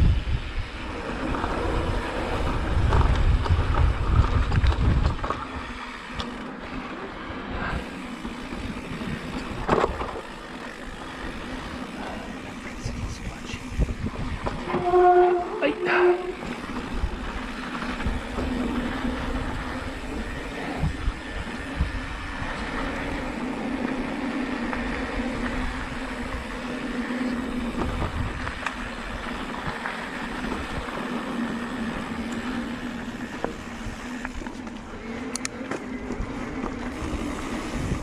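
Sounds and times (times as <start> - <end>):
bike drivetrain hum: 0.0 - 38.0
bike rattling and clicking: 0.0 - 38.0.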